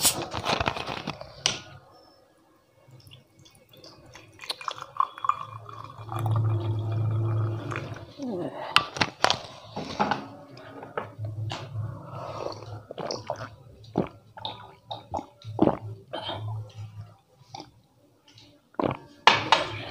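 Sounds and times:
gulps and swallows of drink: 3.7 - 8.9, 12.1 - 16.8, 18.8 - 19.0.

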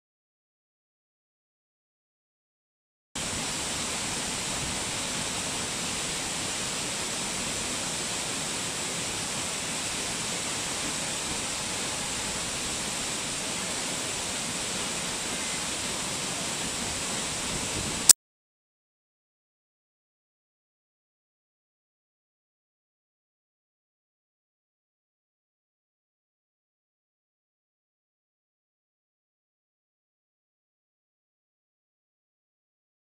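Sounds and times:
waterfall roaring: 3.2 - 18.1.

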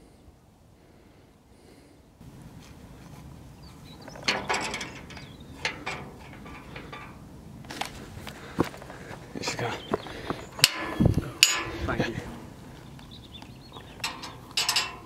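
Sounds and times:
iron gate rattling and creaking: 4.0 - 7.3, 10.6 - 12.6, 13.8 - 15.0.

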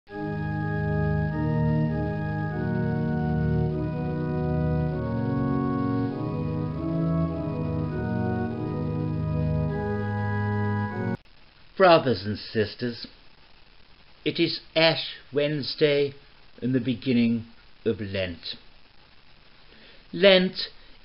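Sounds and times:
slow organ chords: 0.1 - 11.2.

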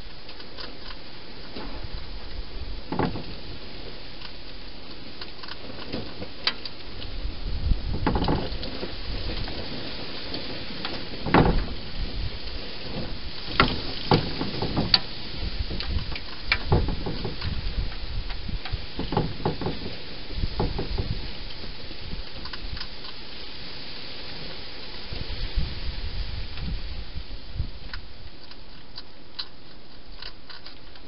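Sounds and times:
steady hiss: 0.0 - 31.0
dull knocks: 11.2 - 11.8, 13.0 - 15.1, 16.5 - 17.9, 19.0 - 21.3.

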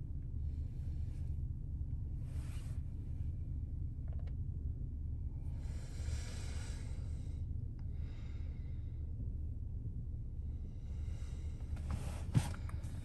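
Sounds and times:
car cabin rumble: 11.5 - 13.0.

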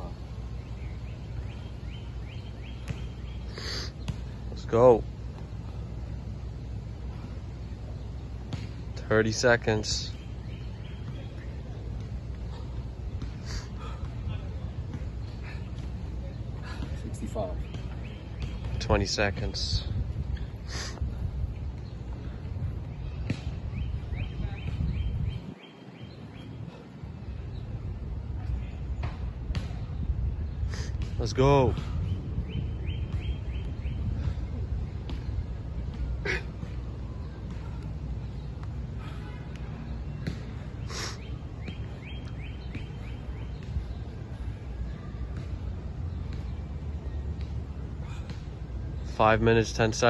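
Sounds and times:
low outdoor rumble: 0.0 - 50.0
bird chirping: 0.1 - 5.6, 7.6 - 12.8, 32.0 - 37.3, 40.2 - 44.4
wind buffeting microphone: 19.3 - 31.2.

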